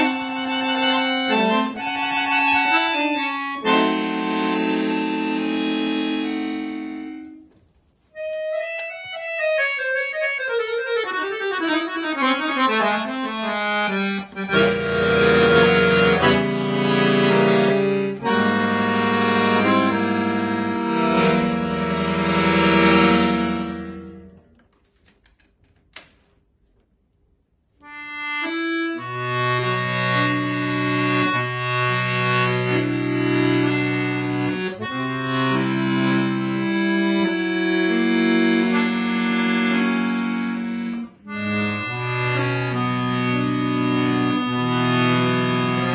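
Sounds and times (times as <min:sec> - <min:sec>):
accordion playing: 0:00.0 - 0:24.5, 0:27.8 - 0:45.9.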